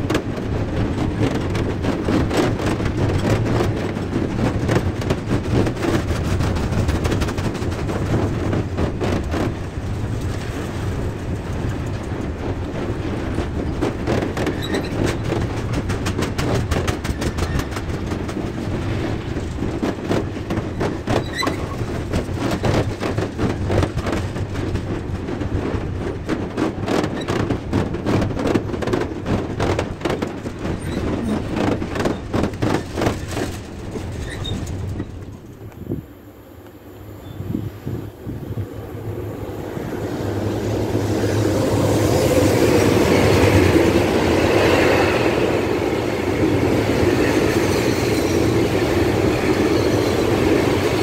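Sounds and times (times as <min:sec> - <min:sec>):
wheels clicking over rail joints: 0:00.0 - 0:35.9
train wheels rumbling on rail: 0:00.0 - 0:51.0.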